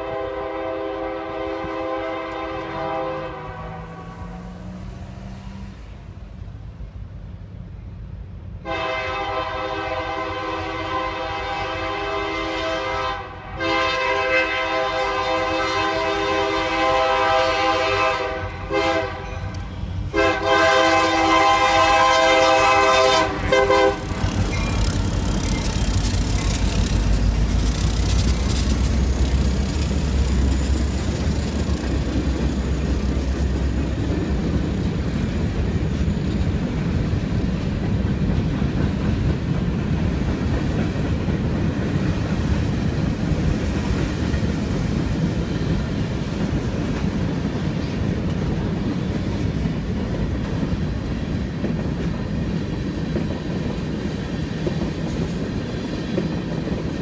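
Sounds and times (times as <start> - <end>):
locomotive horn blowing: 0.0 - 4.5, 8.6 - 25.4
freight cars rumbling and clattering: 22.7 - 57.0.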